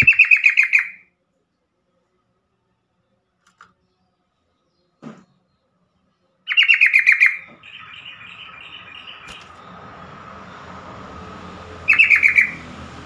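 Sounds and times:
bird chattering: 0.0 - 1.0, 6.5 - 9.6, 11.9 - 12.6.

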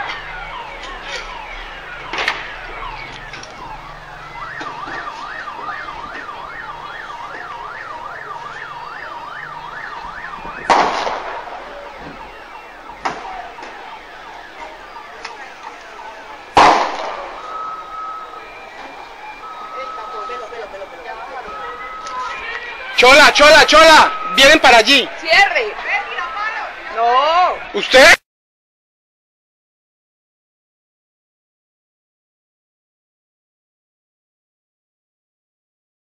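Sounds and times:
siren yelping: 0.0 - 28.2
loud sharp bangs: 9.9 - 13.9, 16.4 - 17.6.

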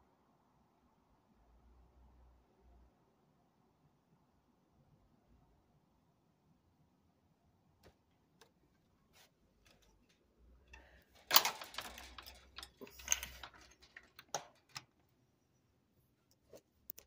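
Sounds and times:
rubbing and scraping of device: 10.8 - 15.0.

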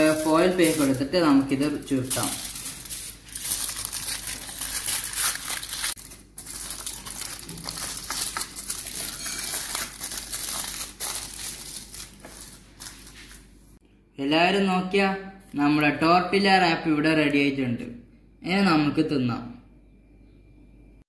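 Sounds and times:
aluminium foil crinkling: 0.0 - 13.5.

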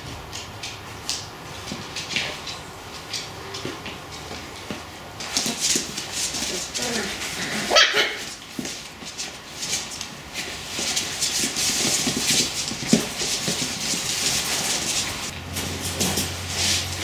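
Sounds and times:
claws scrabbling on floor: 0.2 - 17.0
puppies growling and yipping: 5.2 - 8.5
puppy yelping: 6.5 - 8.4.

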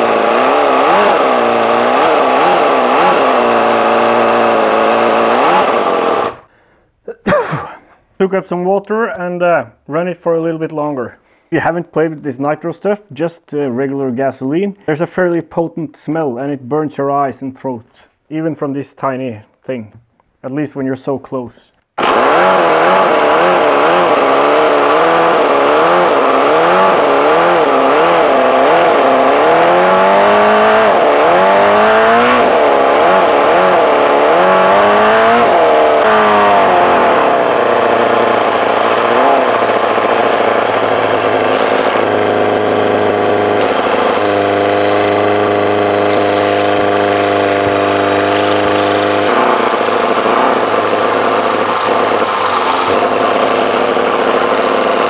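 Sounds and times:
model engine running: 0.0 - 6.5, 22.0 - 55.0.

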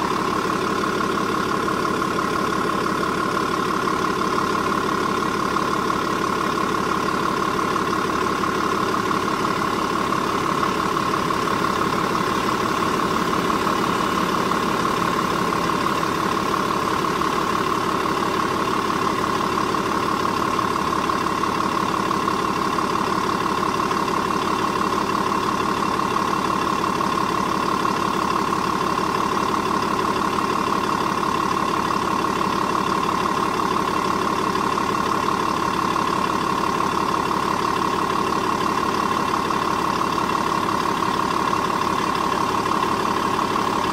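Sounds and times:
diesel engine idling: 0.0 - 43.9.

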